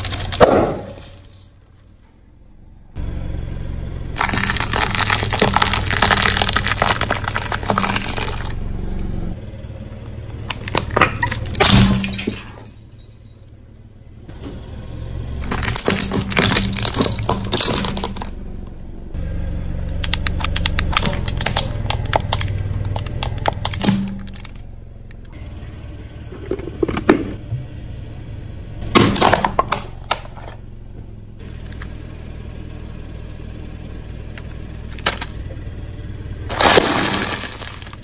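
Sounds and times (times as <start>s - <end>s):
tyre crushing brittle objects: 0.0s - 1.5s, 4.2s - 8.6s, 10.4s - 12.7s, 15.4s - 18.4s, 20.0s - 24.6s, 35.0s - 35.4s, 36.5s - 38.0s
car rumbling: 0.0s - 38.0s.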